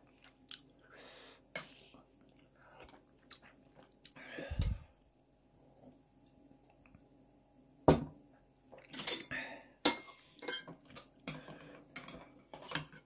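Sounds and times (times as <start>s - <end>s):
dishes and utensils clattering: 8.8s - 13.0s.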